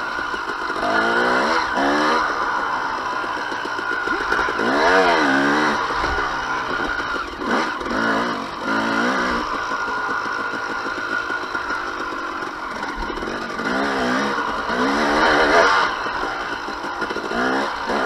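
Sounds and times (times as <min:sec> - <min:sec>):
two-stroke engine revving: 0:00.0 - 0:18.0.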